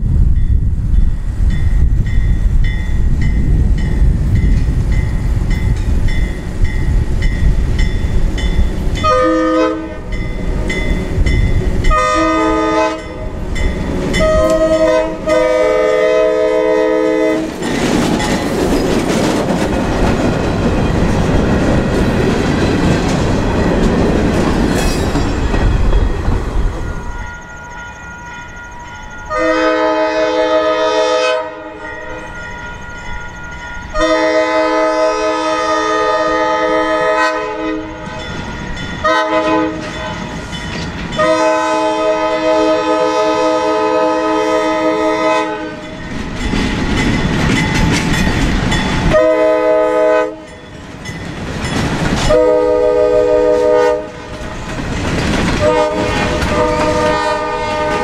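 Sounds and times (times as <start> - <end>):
locomotive and freight cars passing: 0.0 - 58.0
locomotive bell ringing: 0.4 - 15.4, 23.4 - 29.9, 31.8 - 34.2, 37.8 - 41.5, 45.7 - 49.3, 50.3 - 52.4
train horn: 9.0 - 10.2, 11.9 - 13.4, 14.1 - 17.6, 29.3 - 32.2, 33.9 - 38.2, 39.0 - 40.2, 41.1 - 46.0, 49.1 - 50.6, 52.2 - 54.4, 55.6 - 58.0.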